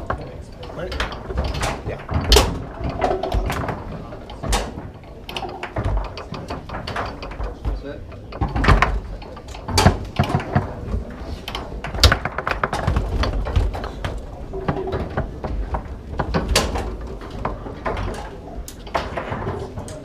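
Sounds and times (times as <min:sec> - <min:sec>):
foosball ball clacking: 0:00.0 - 0:20.0
foosball rods sliding and banging: 0:00.0 - 0:20.0.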